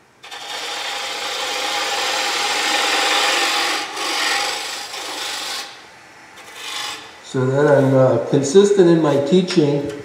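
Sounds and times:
lathe tool scraping wood: 0.2 - 5.8, 6.4 - 8.1.

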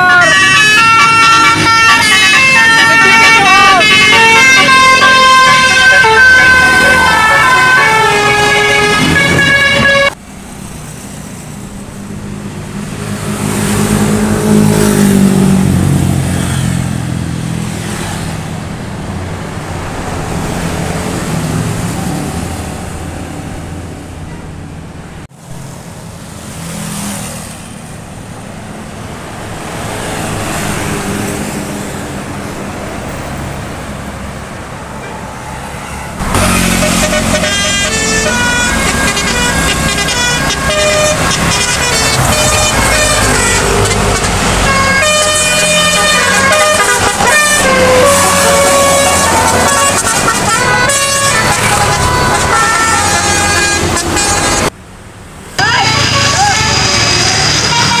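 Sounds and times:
multi-tone horn tune: 0.0 - 10.2, 35.8 - 54.7, 55.8 - 58.0
buses passing: 0.0 - 58.0
road traffic: 0.0 - 58.0.

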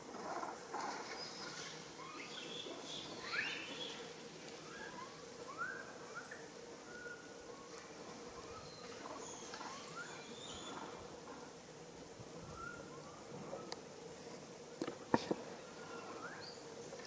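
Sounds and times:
monkeys giving coo calls: 2.0 - 4.0.

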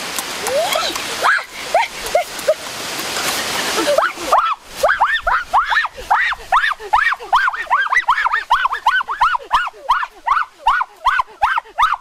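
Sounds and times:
child yelping: 0.4 - 1.9, 3.9 - 12.0.

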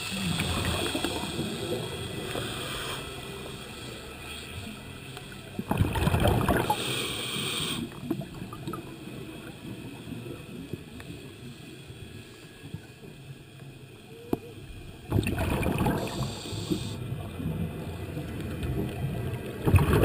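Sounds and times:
exhaled bubbles underwater: 0.0 - 2.8, 5.6 - 7.0, 7.9 - 10.2, 15.1 - 20.0
regulator inhalation hiss: 0.0 - 4.5, 6.6 - 8.0, 15.9 - 17.0.

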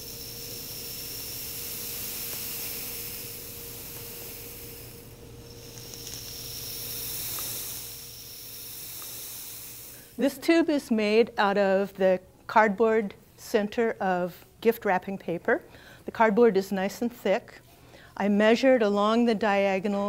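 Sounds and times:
rain stick hiss: 0.0 - 10.4.

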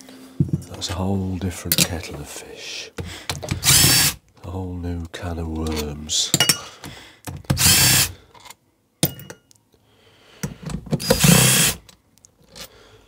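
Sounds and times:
power tool whining: 3.5 - 4.2, 7.5 - 8.1, 11.0 - 11.8.

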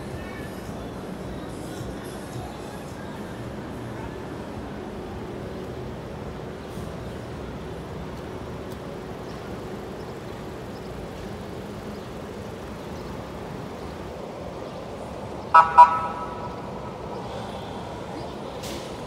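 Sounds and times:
street traffic noise: 0.0 - 19.0
vehicle horn honks: 15.6 - 16.6.

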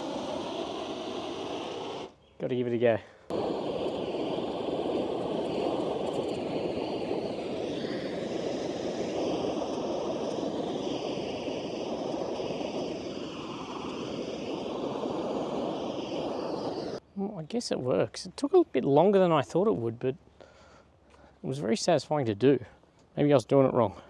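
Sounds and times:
gas burner flame rushing: 0.0 - 17.0.

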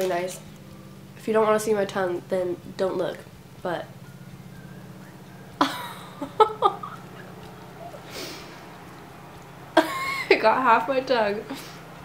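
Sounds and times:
low room hum: 0.0 - 12.0
woman laughing and giggling: 5.6 - 8.0, 9.8 - 10.4
breathy exhale: 8.0 - 8.7.

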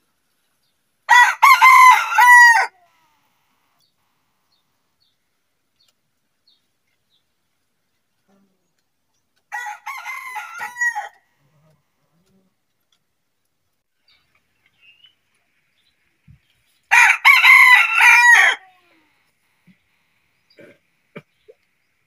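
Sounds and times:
rooster crowing: 1.1 - 2.8, 9.5 - 11.2, 16.9 - 18.8.

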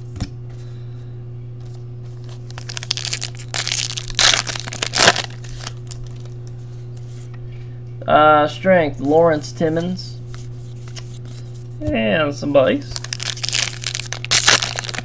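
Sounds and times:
foil wrapper tearing and crinkling: 2.2 - 6.4, 12.9 - 15.0.

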